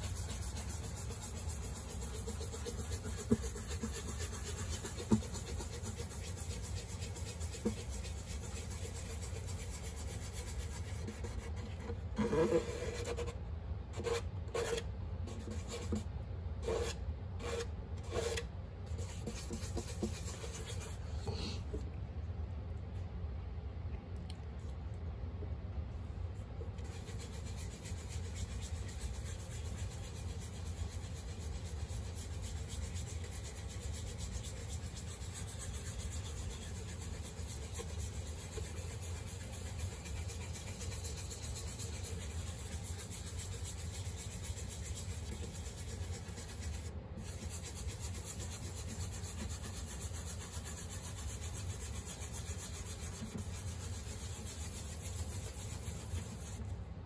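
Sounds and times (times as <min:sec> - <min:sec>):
cloth pad scrubbing wood: 0:00.0 - 0:12.7, 0:26.8 - 0:56.6.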